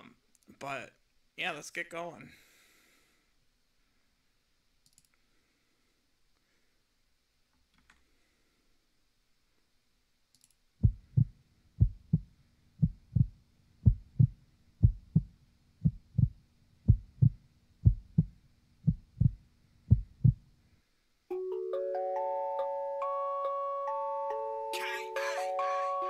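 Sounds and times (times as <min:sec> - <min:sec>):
heartbeat thumps: 0:10.8 - 0:20.5
chime-like melody: 0:21.3 - 0:26.0.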